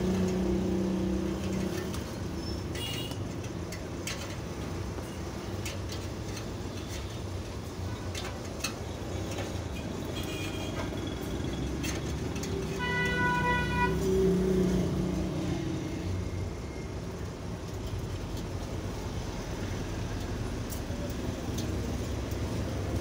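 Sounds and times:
low rumble of street traffic: 0:00.0 - 0:23.0
vehicle horn: 0:10.2 - 0:10.8, 0:12.8 - 0:14.2.

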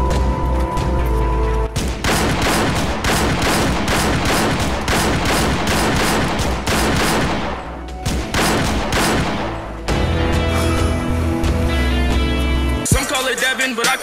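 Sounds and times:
rapid gunfire: 0:01.8 - 0:09.8.

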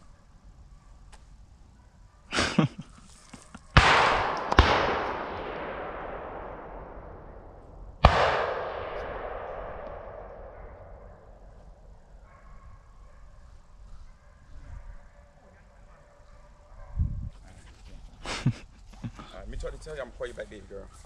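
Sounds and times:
shotgun blasts with echo: 0:03.7 - 0:11.7.

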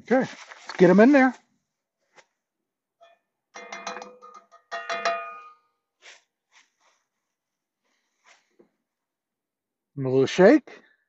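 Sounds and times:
metal cookware clanking: 0:03.0 - 0:05.7
faint rustles: 0:06.0 - 0:08.7.

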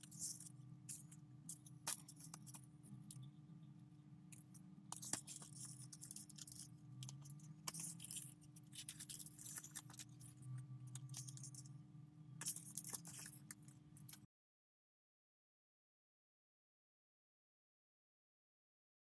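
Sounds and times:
faint steady hum: 0:00.0 - 0:14.3.

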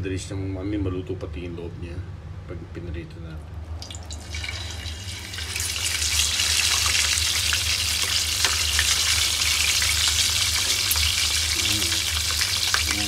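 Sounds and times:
fish sizzling in hot oil: 0:03.8 - 0:13.0
oil crackling and popping: 0:03.8 - 0:13.0.

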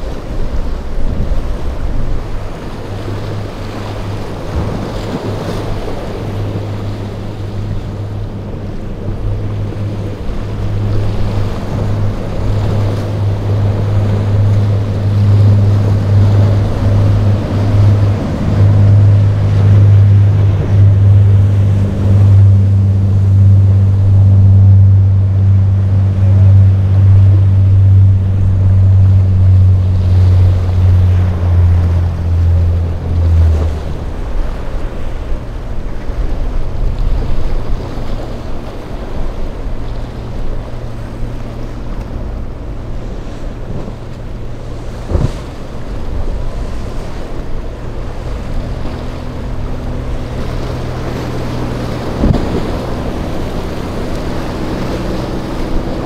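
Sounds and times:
boat engines droning: 0:00.0 - 0:56.0
waves breaking and spray: 0:00.0 - 0:56.0
wind on microphone: 0:00.0 - 0:56.0.

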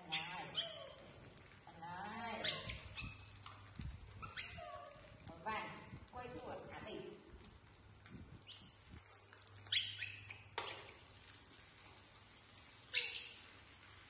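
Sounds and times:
baby monkeys squeaking: 0:00.0 - 0:01.0, 0:02.4 - 0:03.4, 0:04.2 - 0:05.0, 0:08.4 - 0:11.1, 0:12.9 - 0:13.5.

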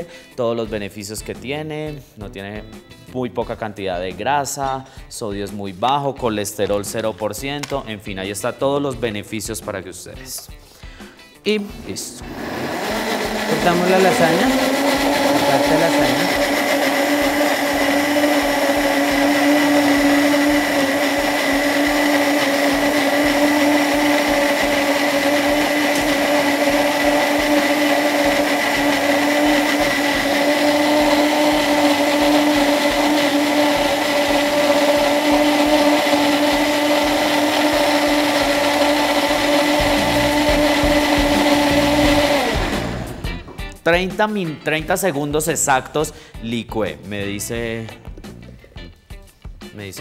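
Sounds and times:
kitchen blender running: 0:11.6 - 0:43.4.

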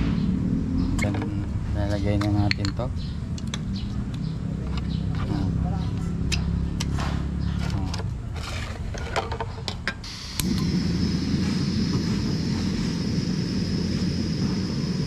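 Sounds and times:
gas hissing: 0:10.0 - 0:15.0.

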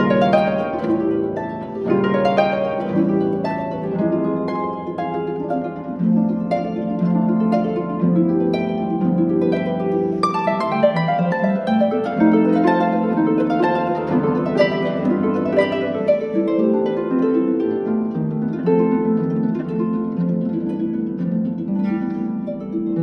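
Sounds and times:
harp plucked notes: 0:00.0 - 0:23.0.

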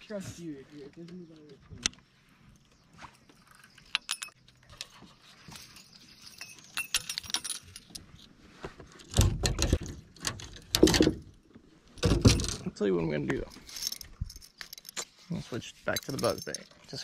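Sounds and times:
fishing lure clinking: 0:16.0 - 0:16.8.

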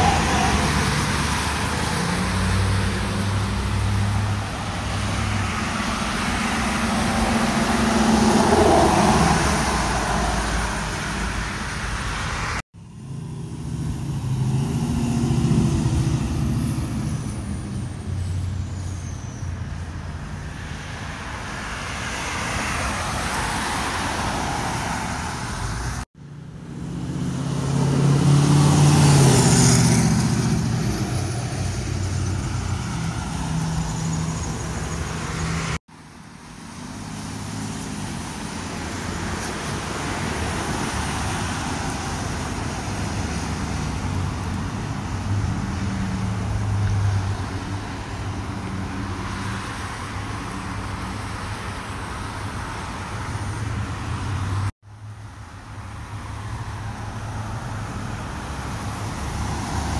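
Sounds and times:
pickup truck loud engine passing: 0:00.0 - 0:11.6, 0:12.4 - 0:18.7, 0:26.4 - 0:35.8
cars driving past: 0:00.0 - 0:59.9.

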